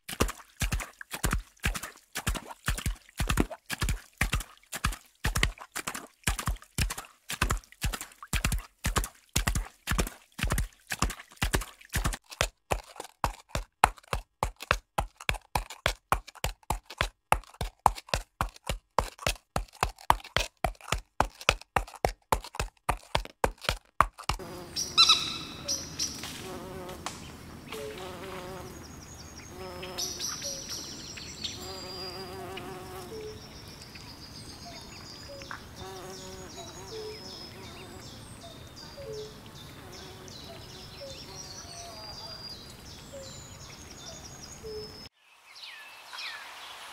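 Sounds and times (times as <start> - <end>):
horse hooves on concrete: 0.0 - 24.6
buzzing insects: 24.4 - 30.5, 31.4 - 33.4, 35.8 - 38.1
birds chirping: 24.4 - 46.5.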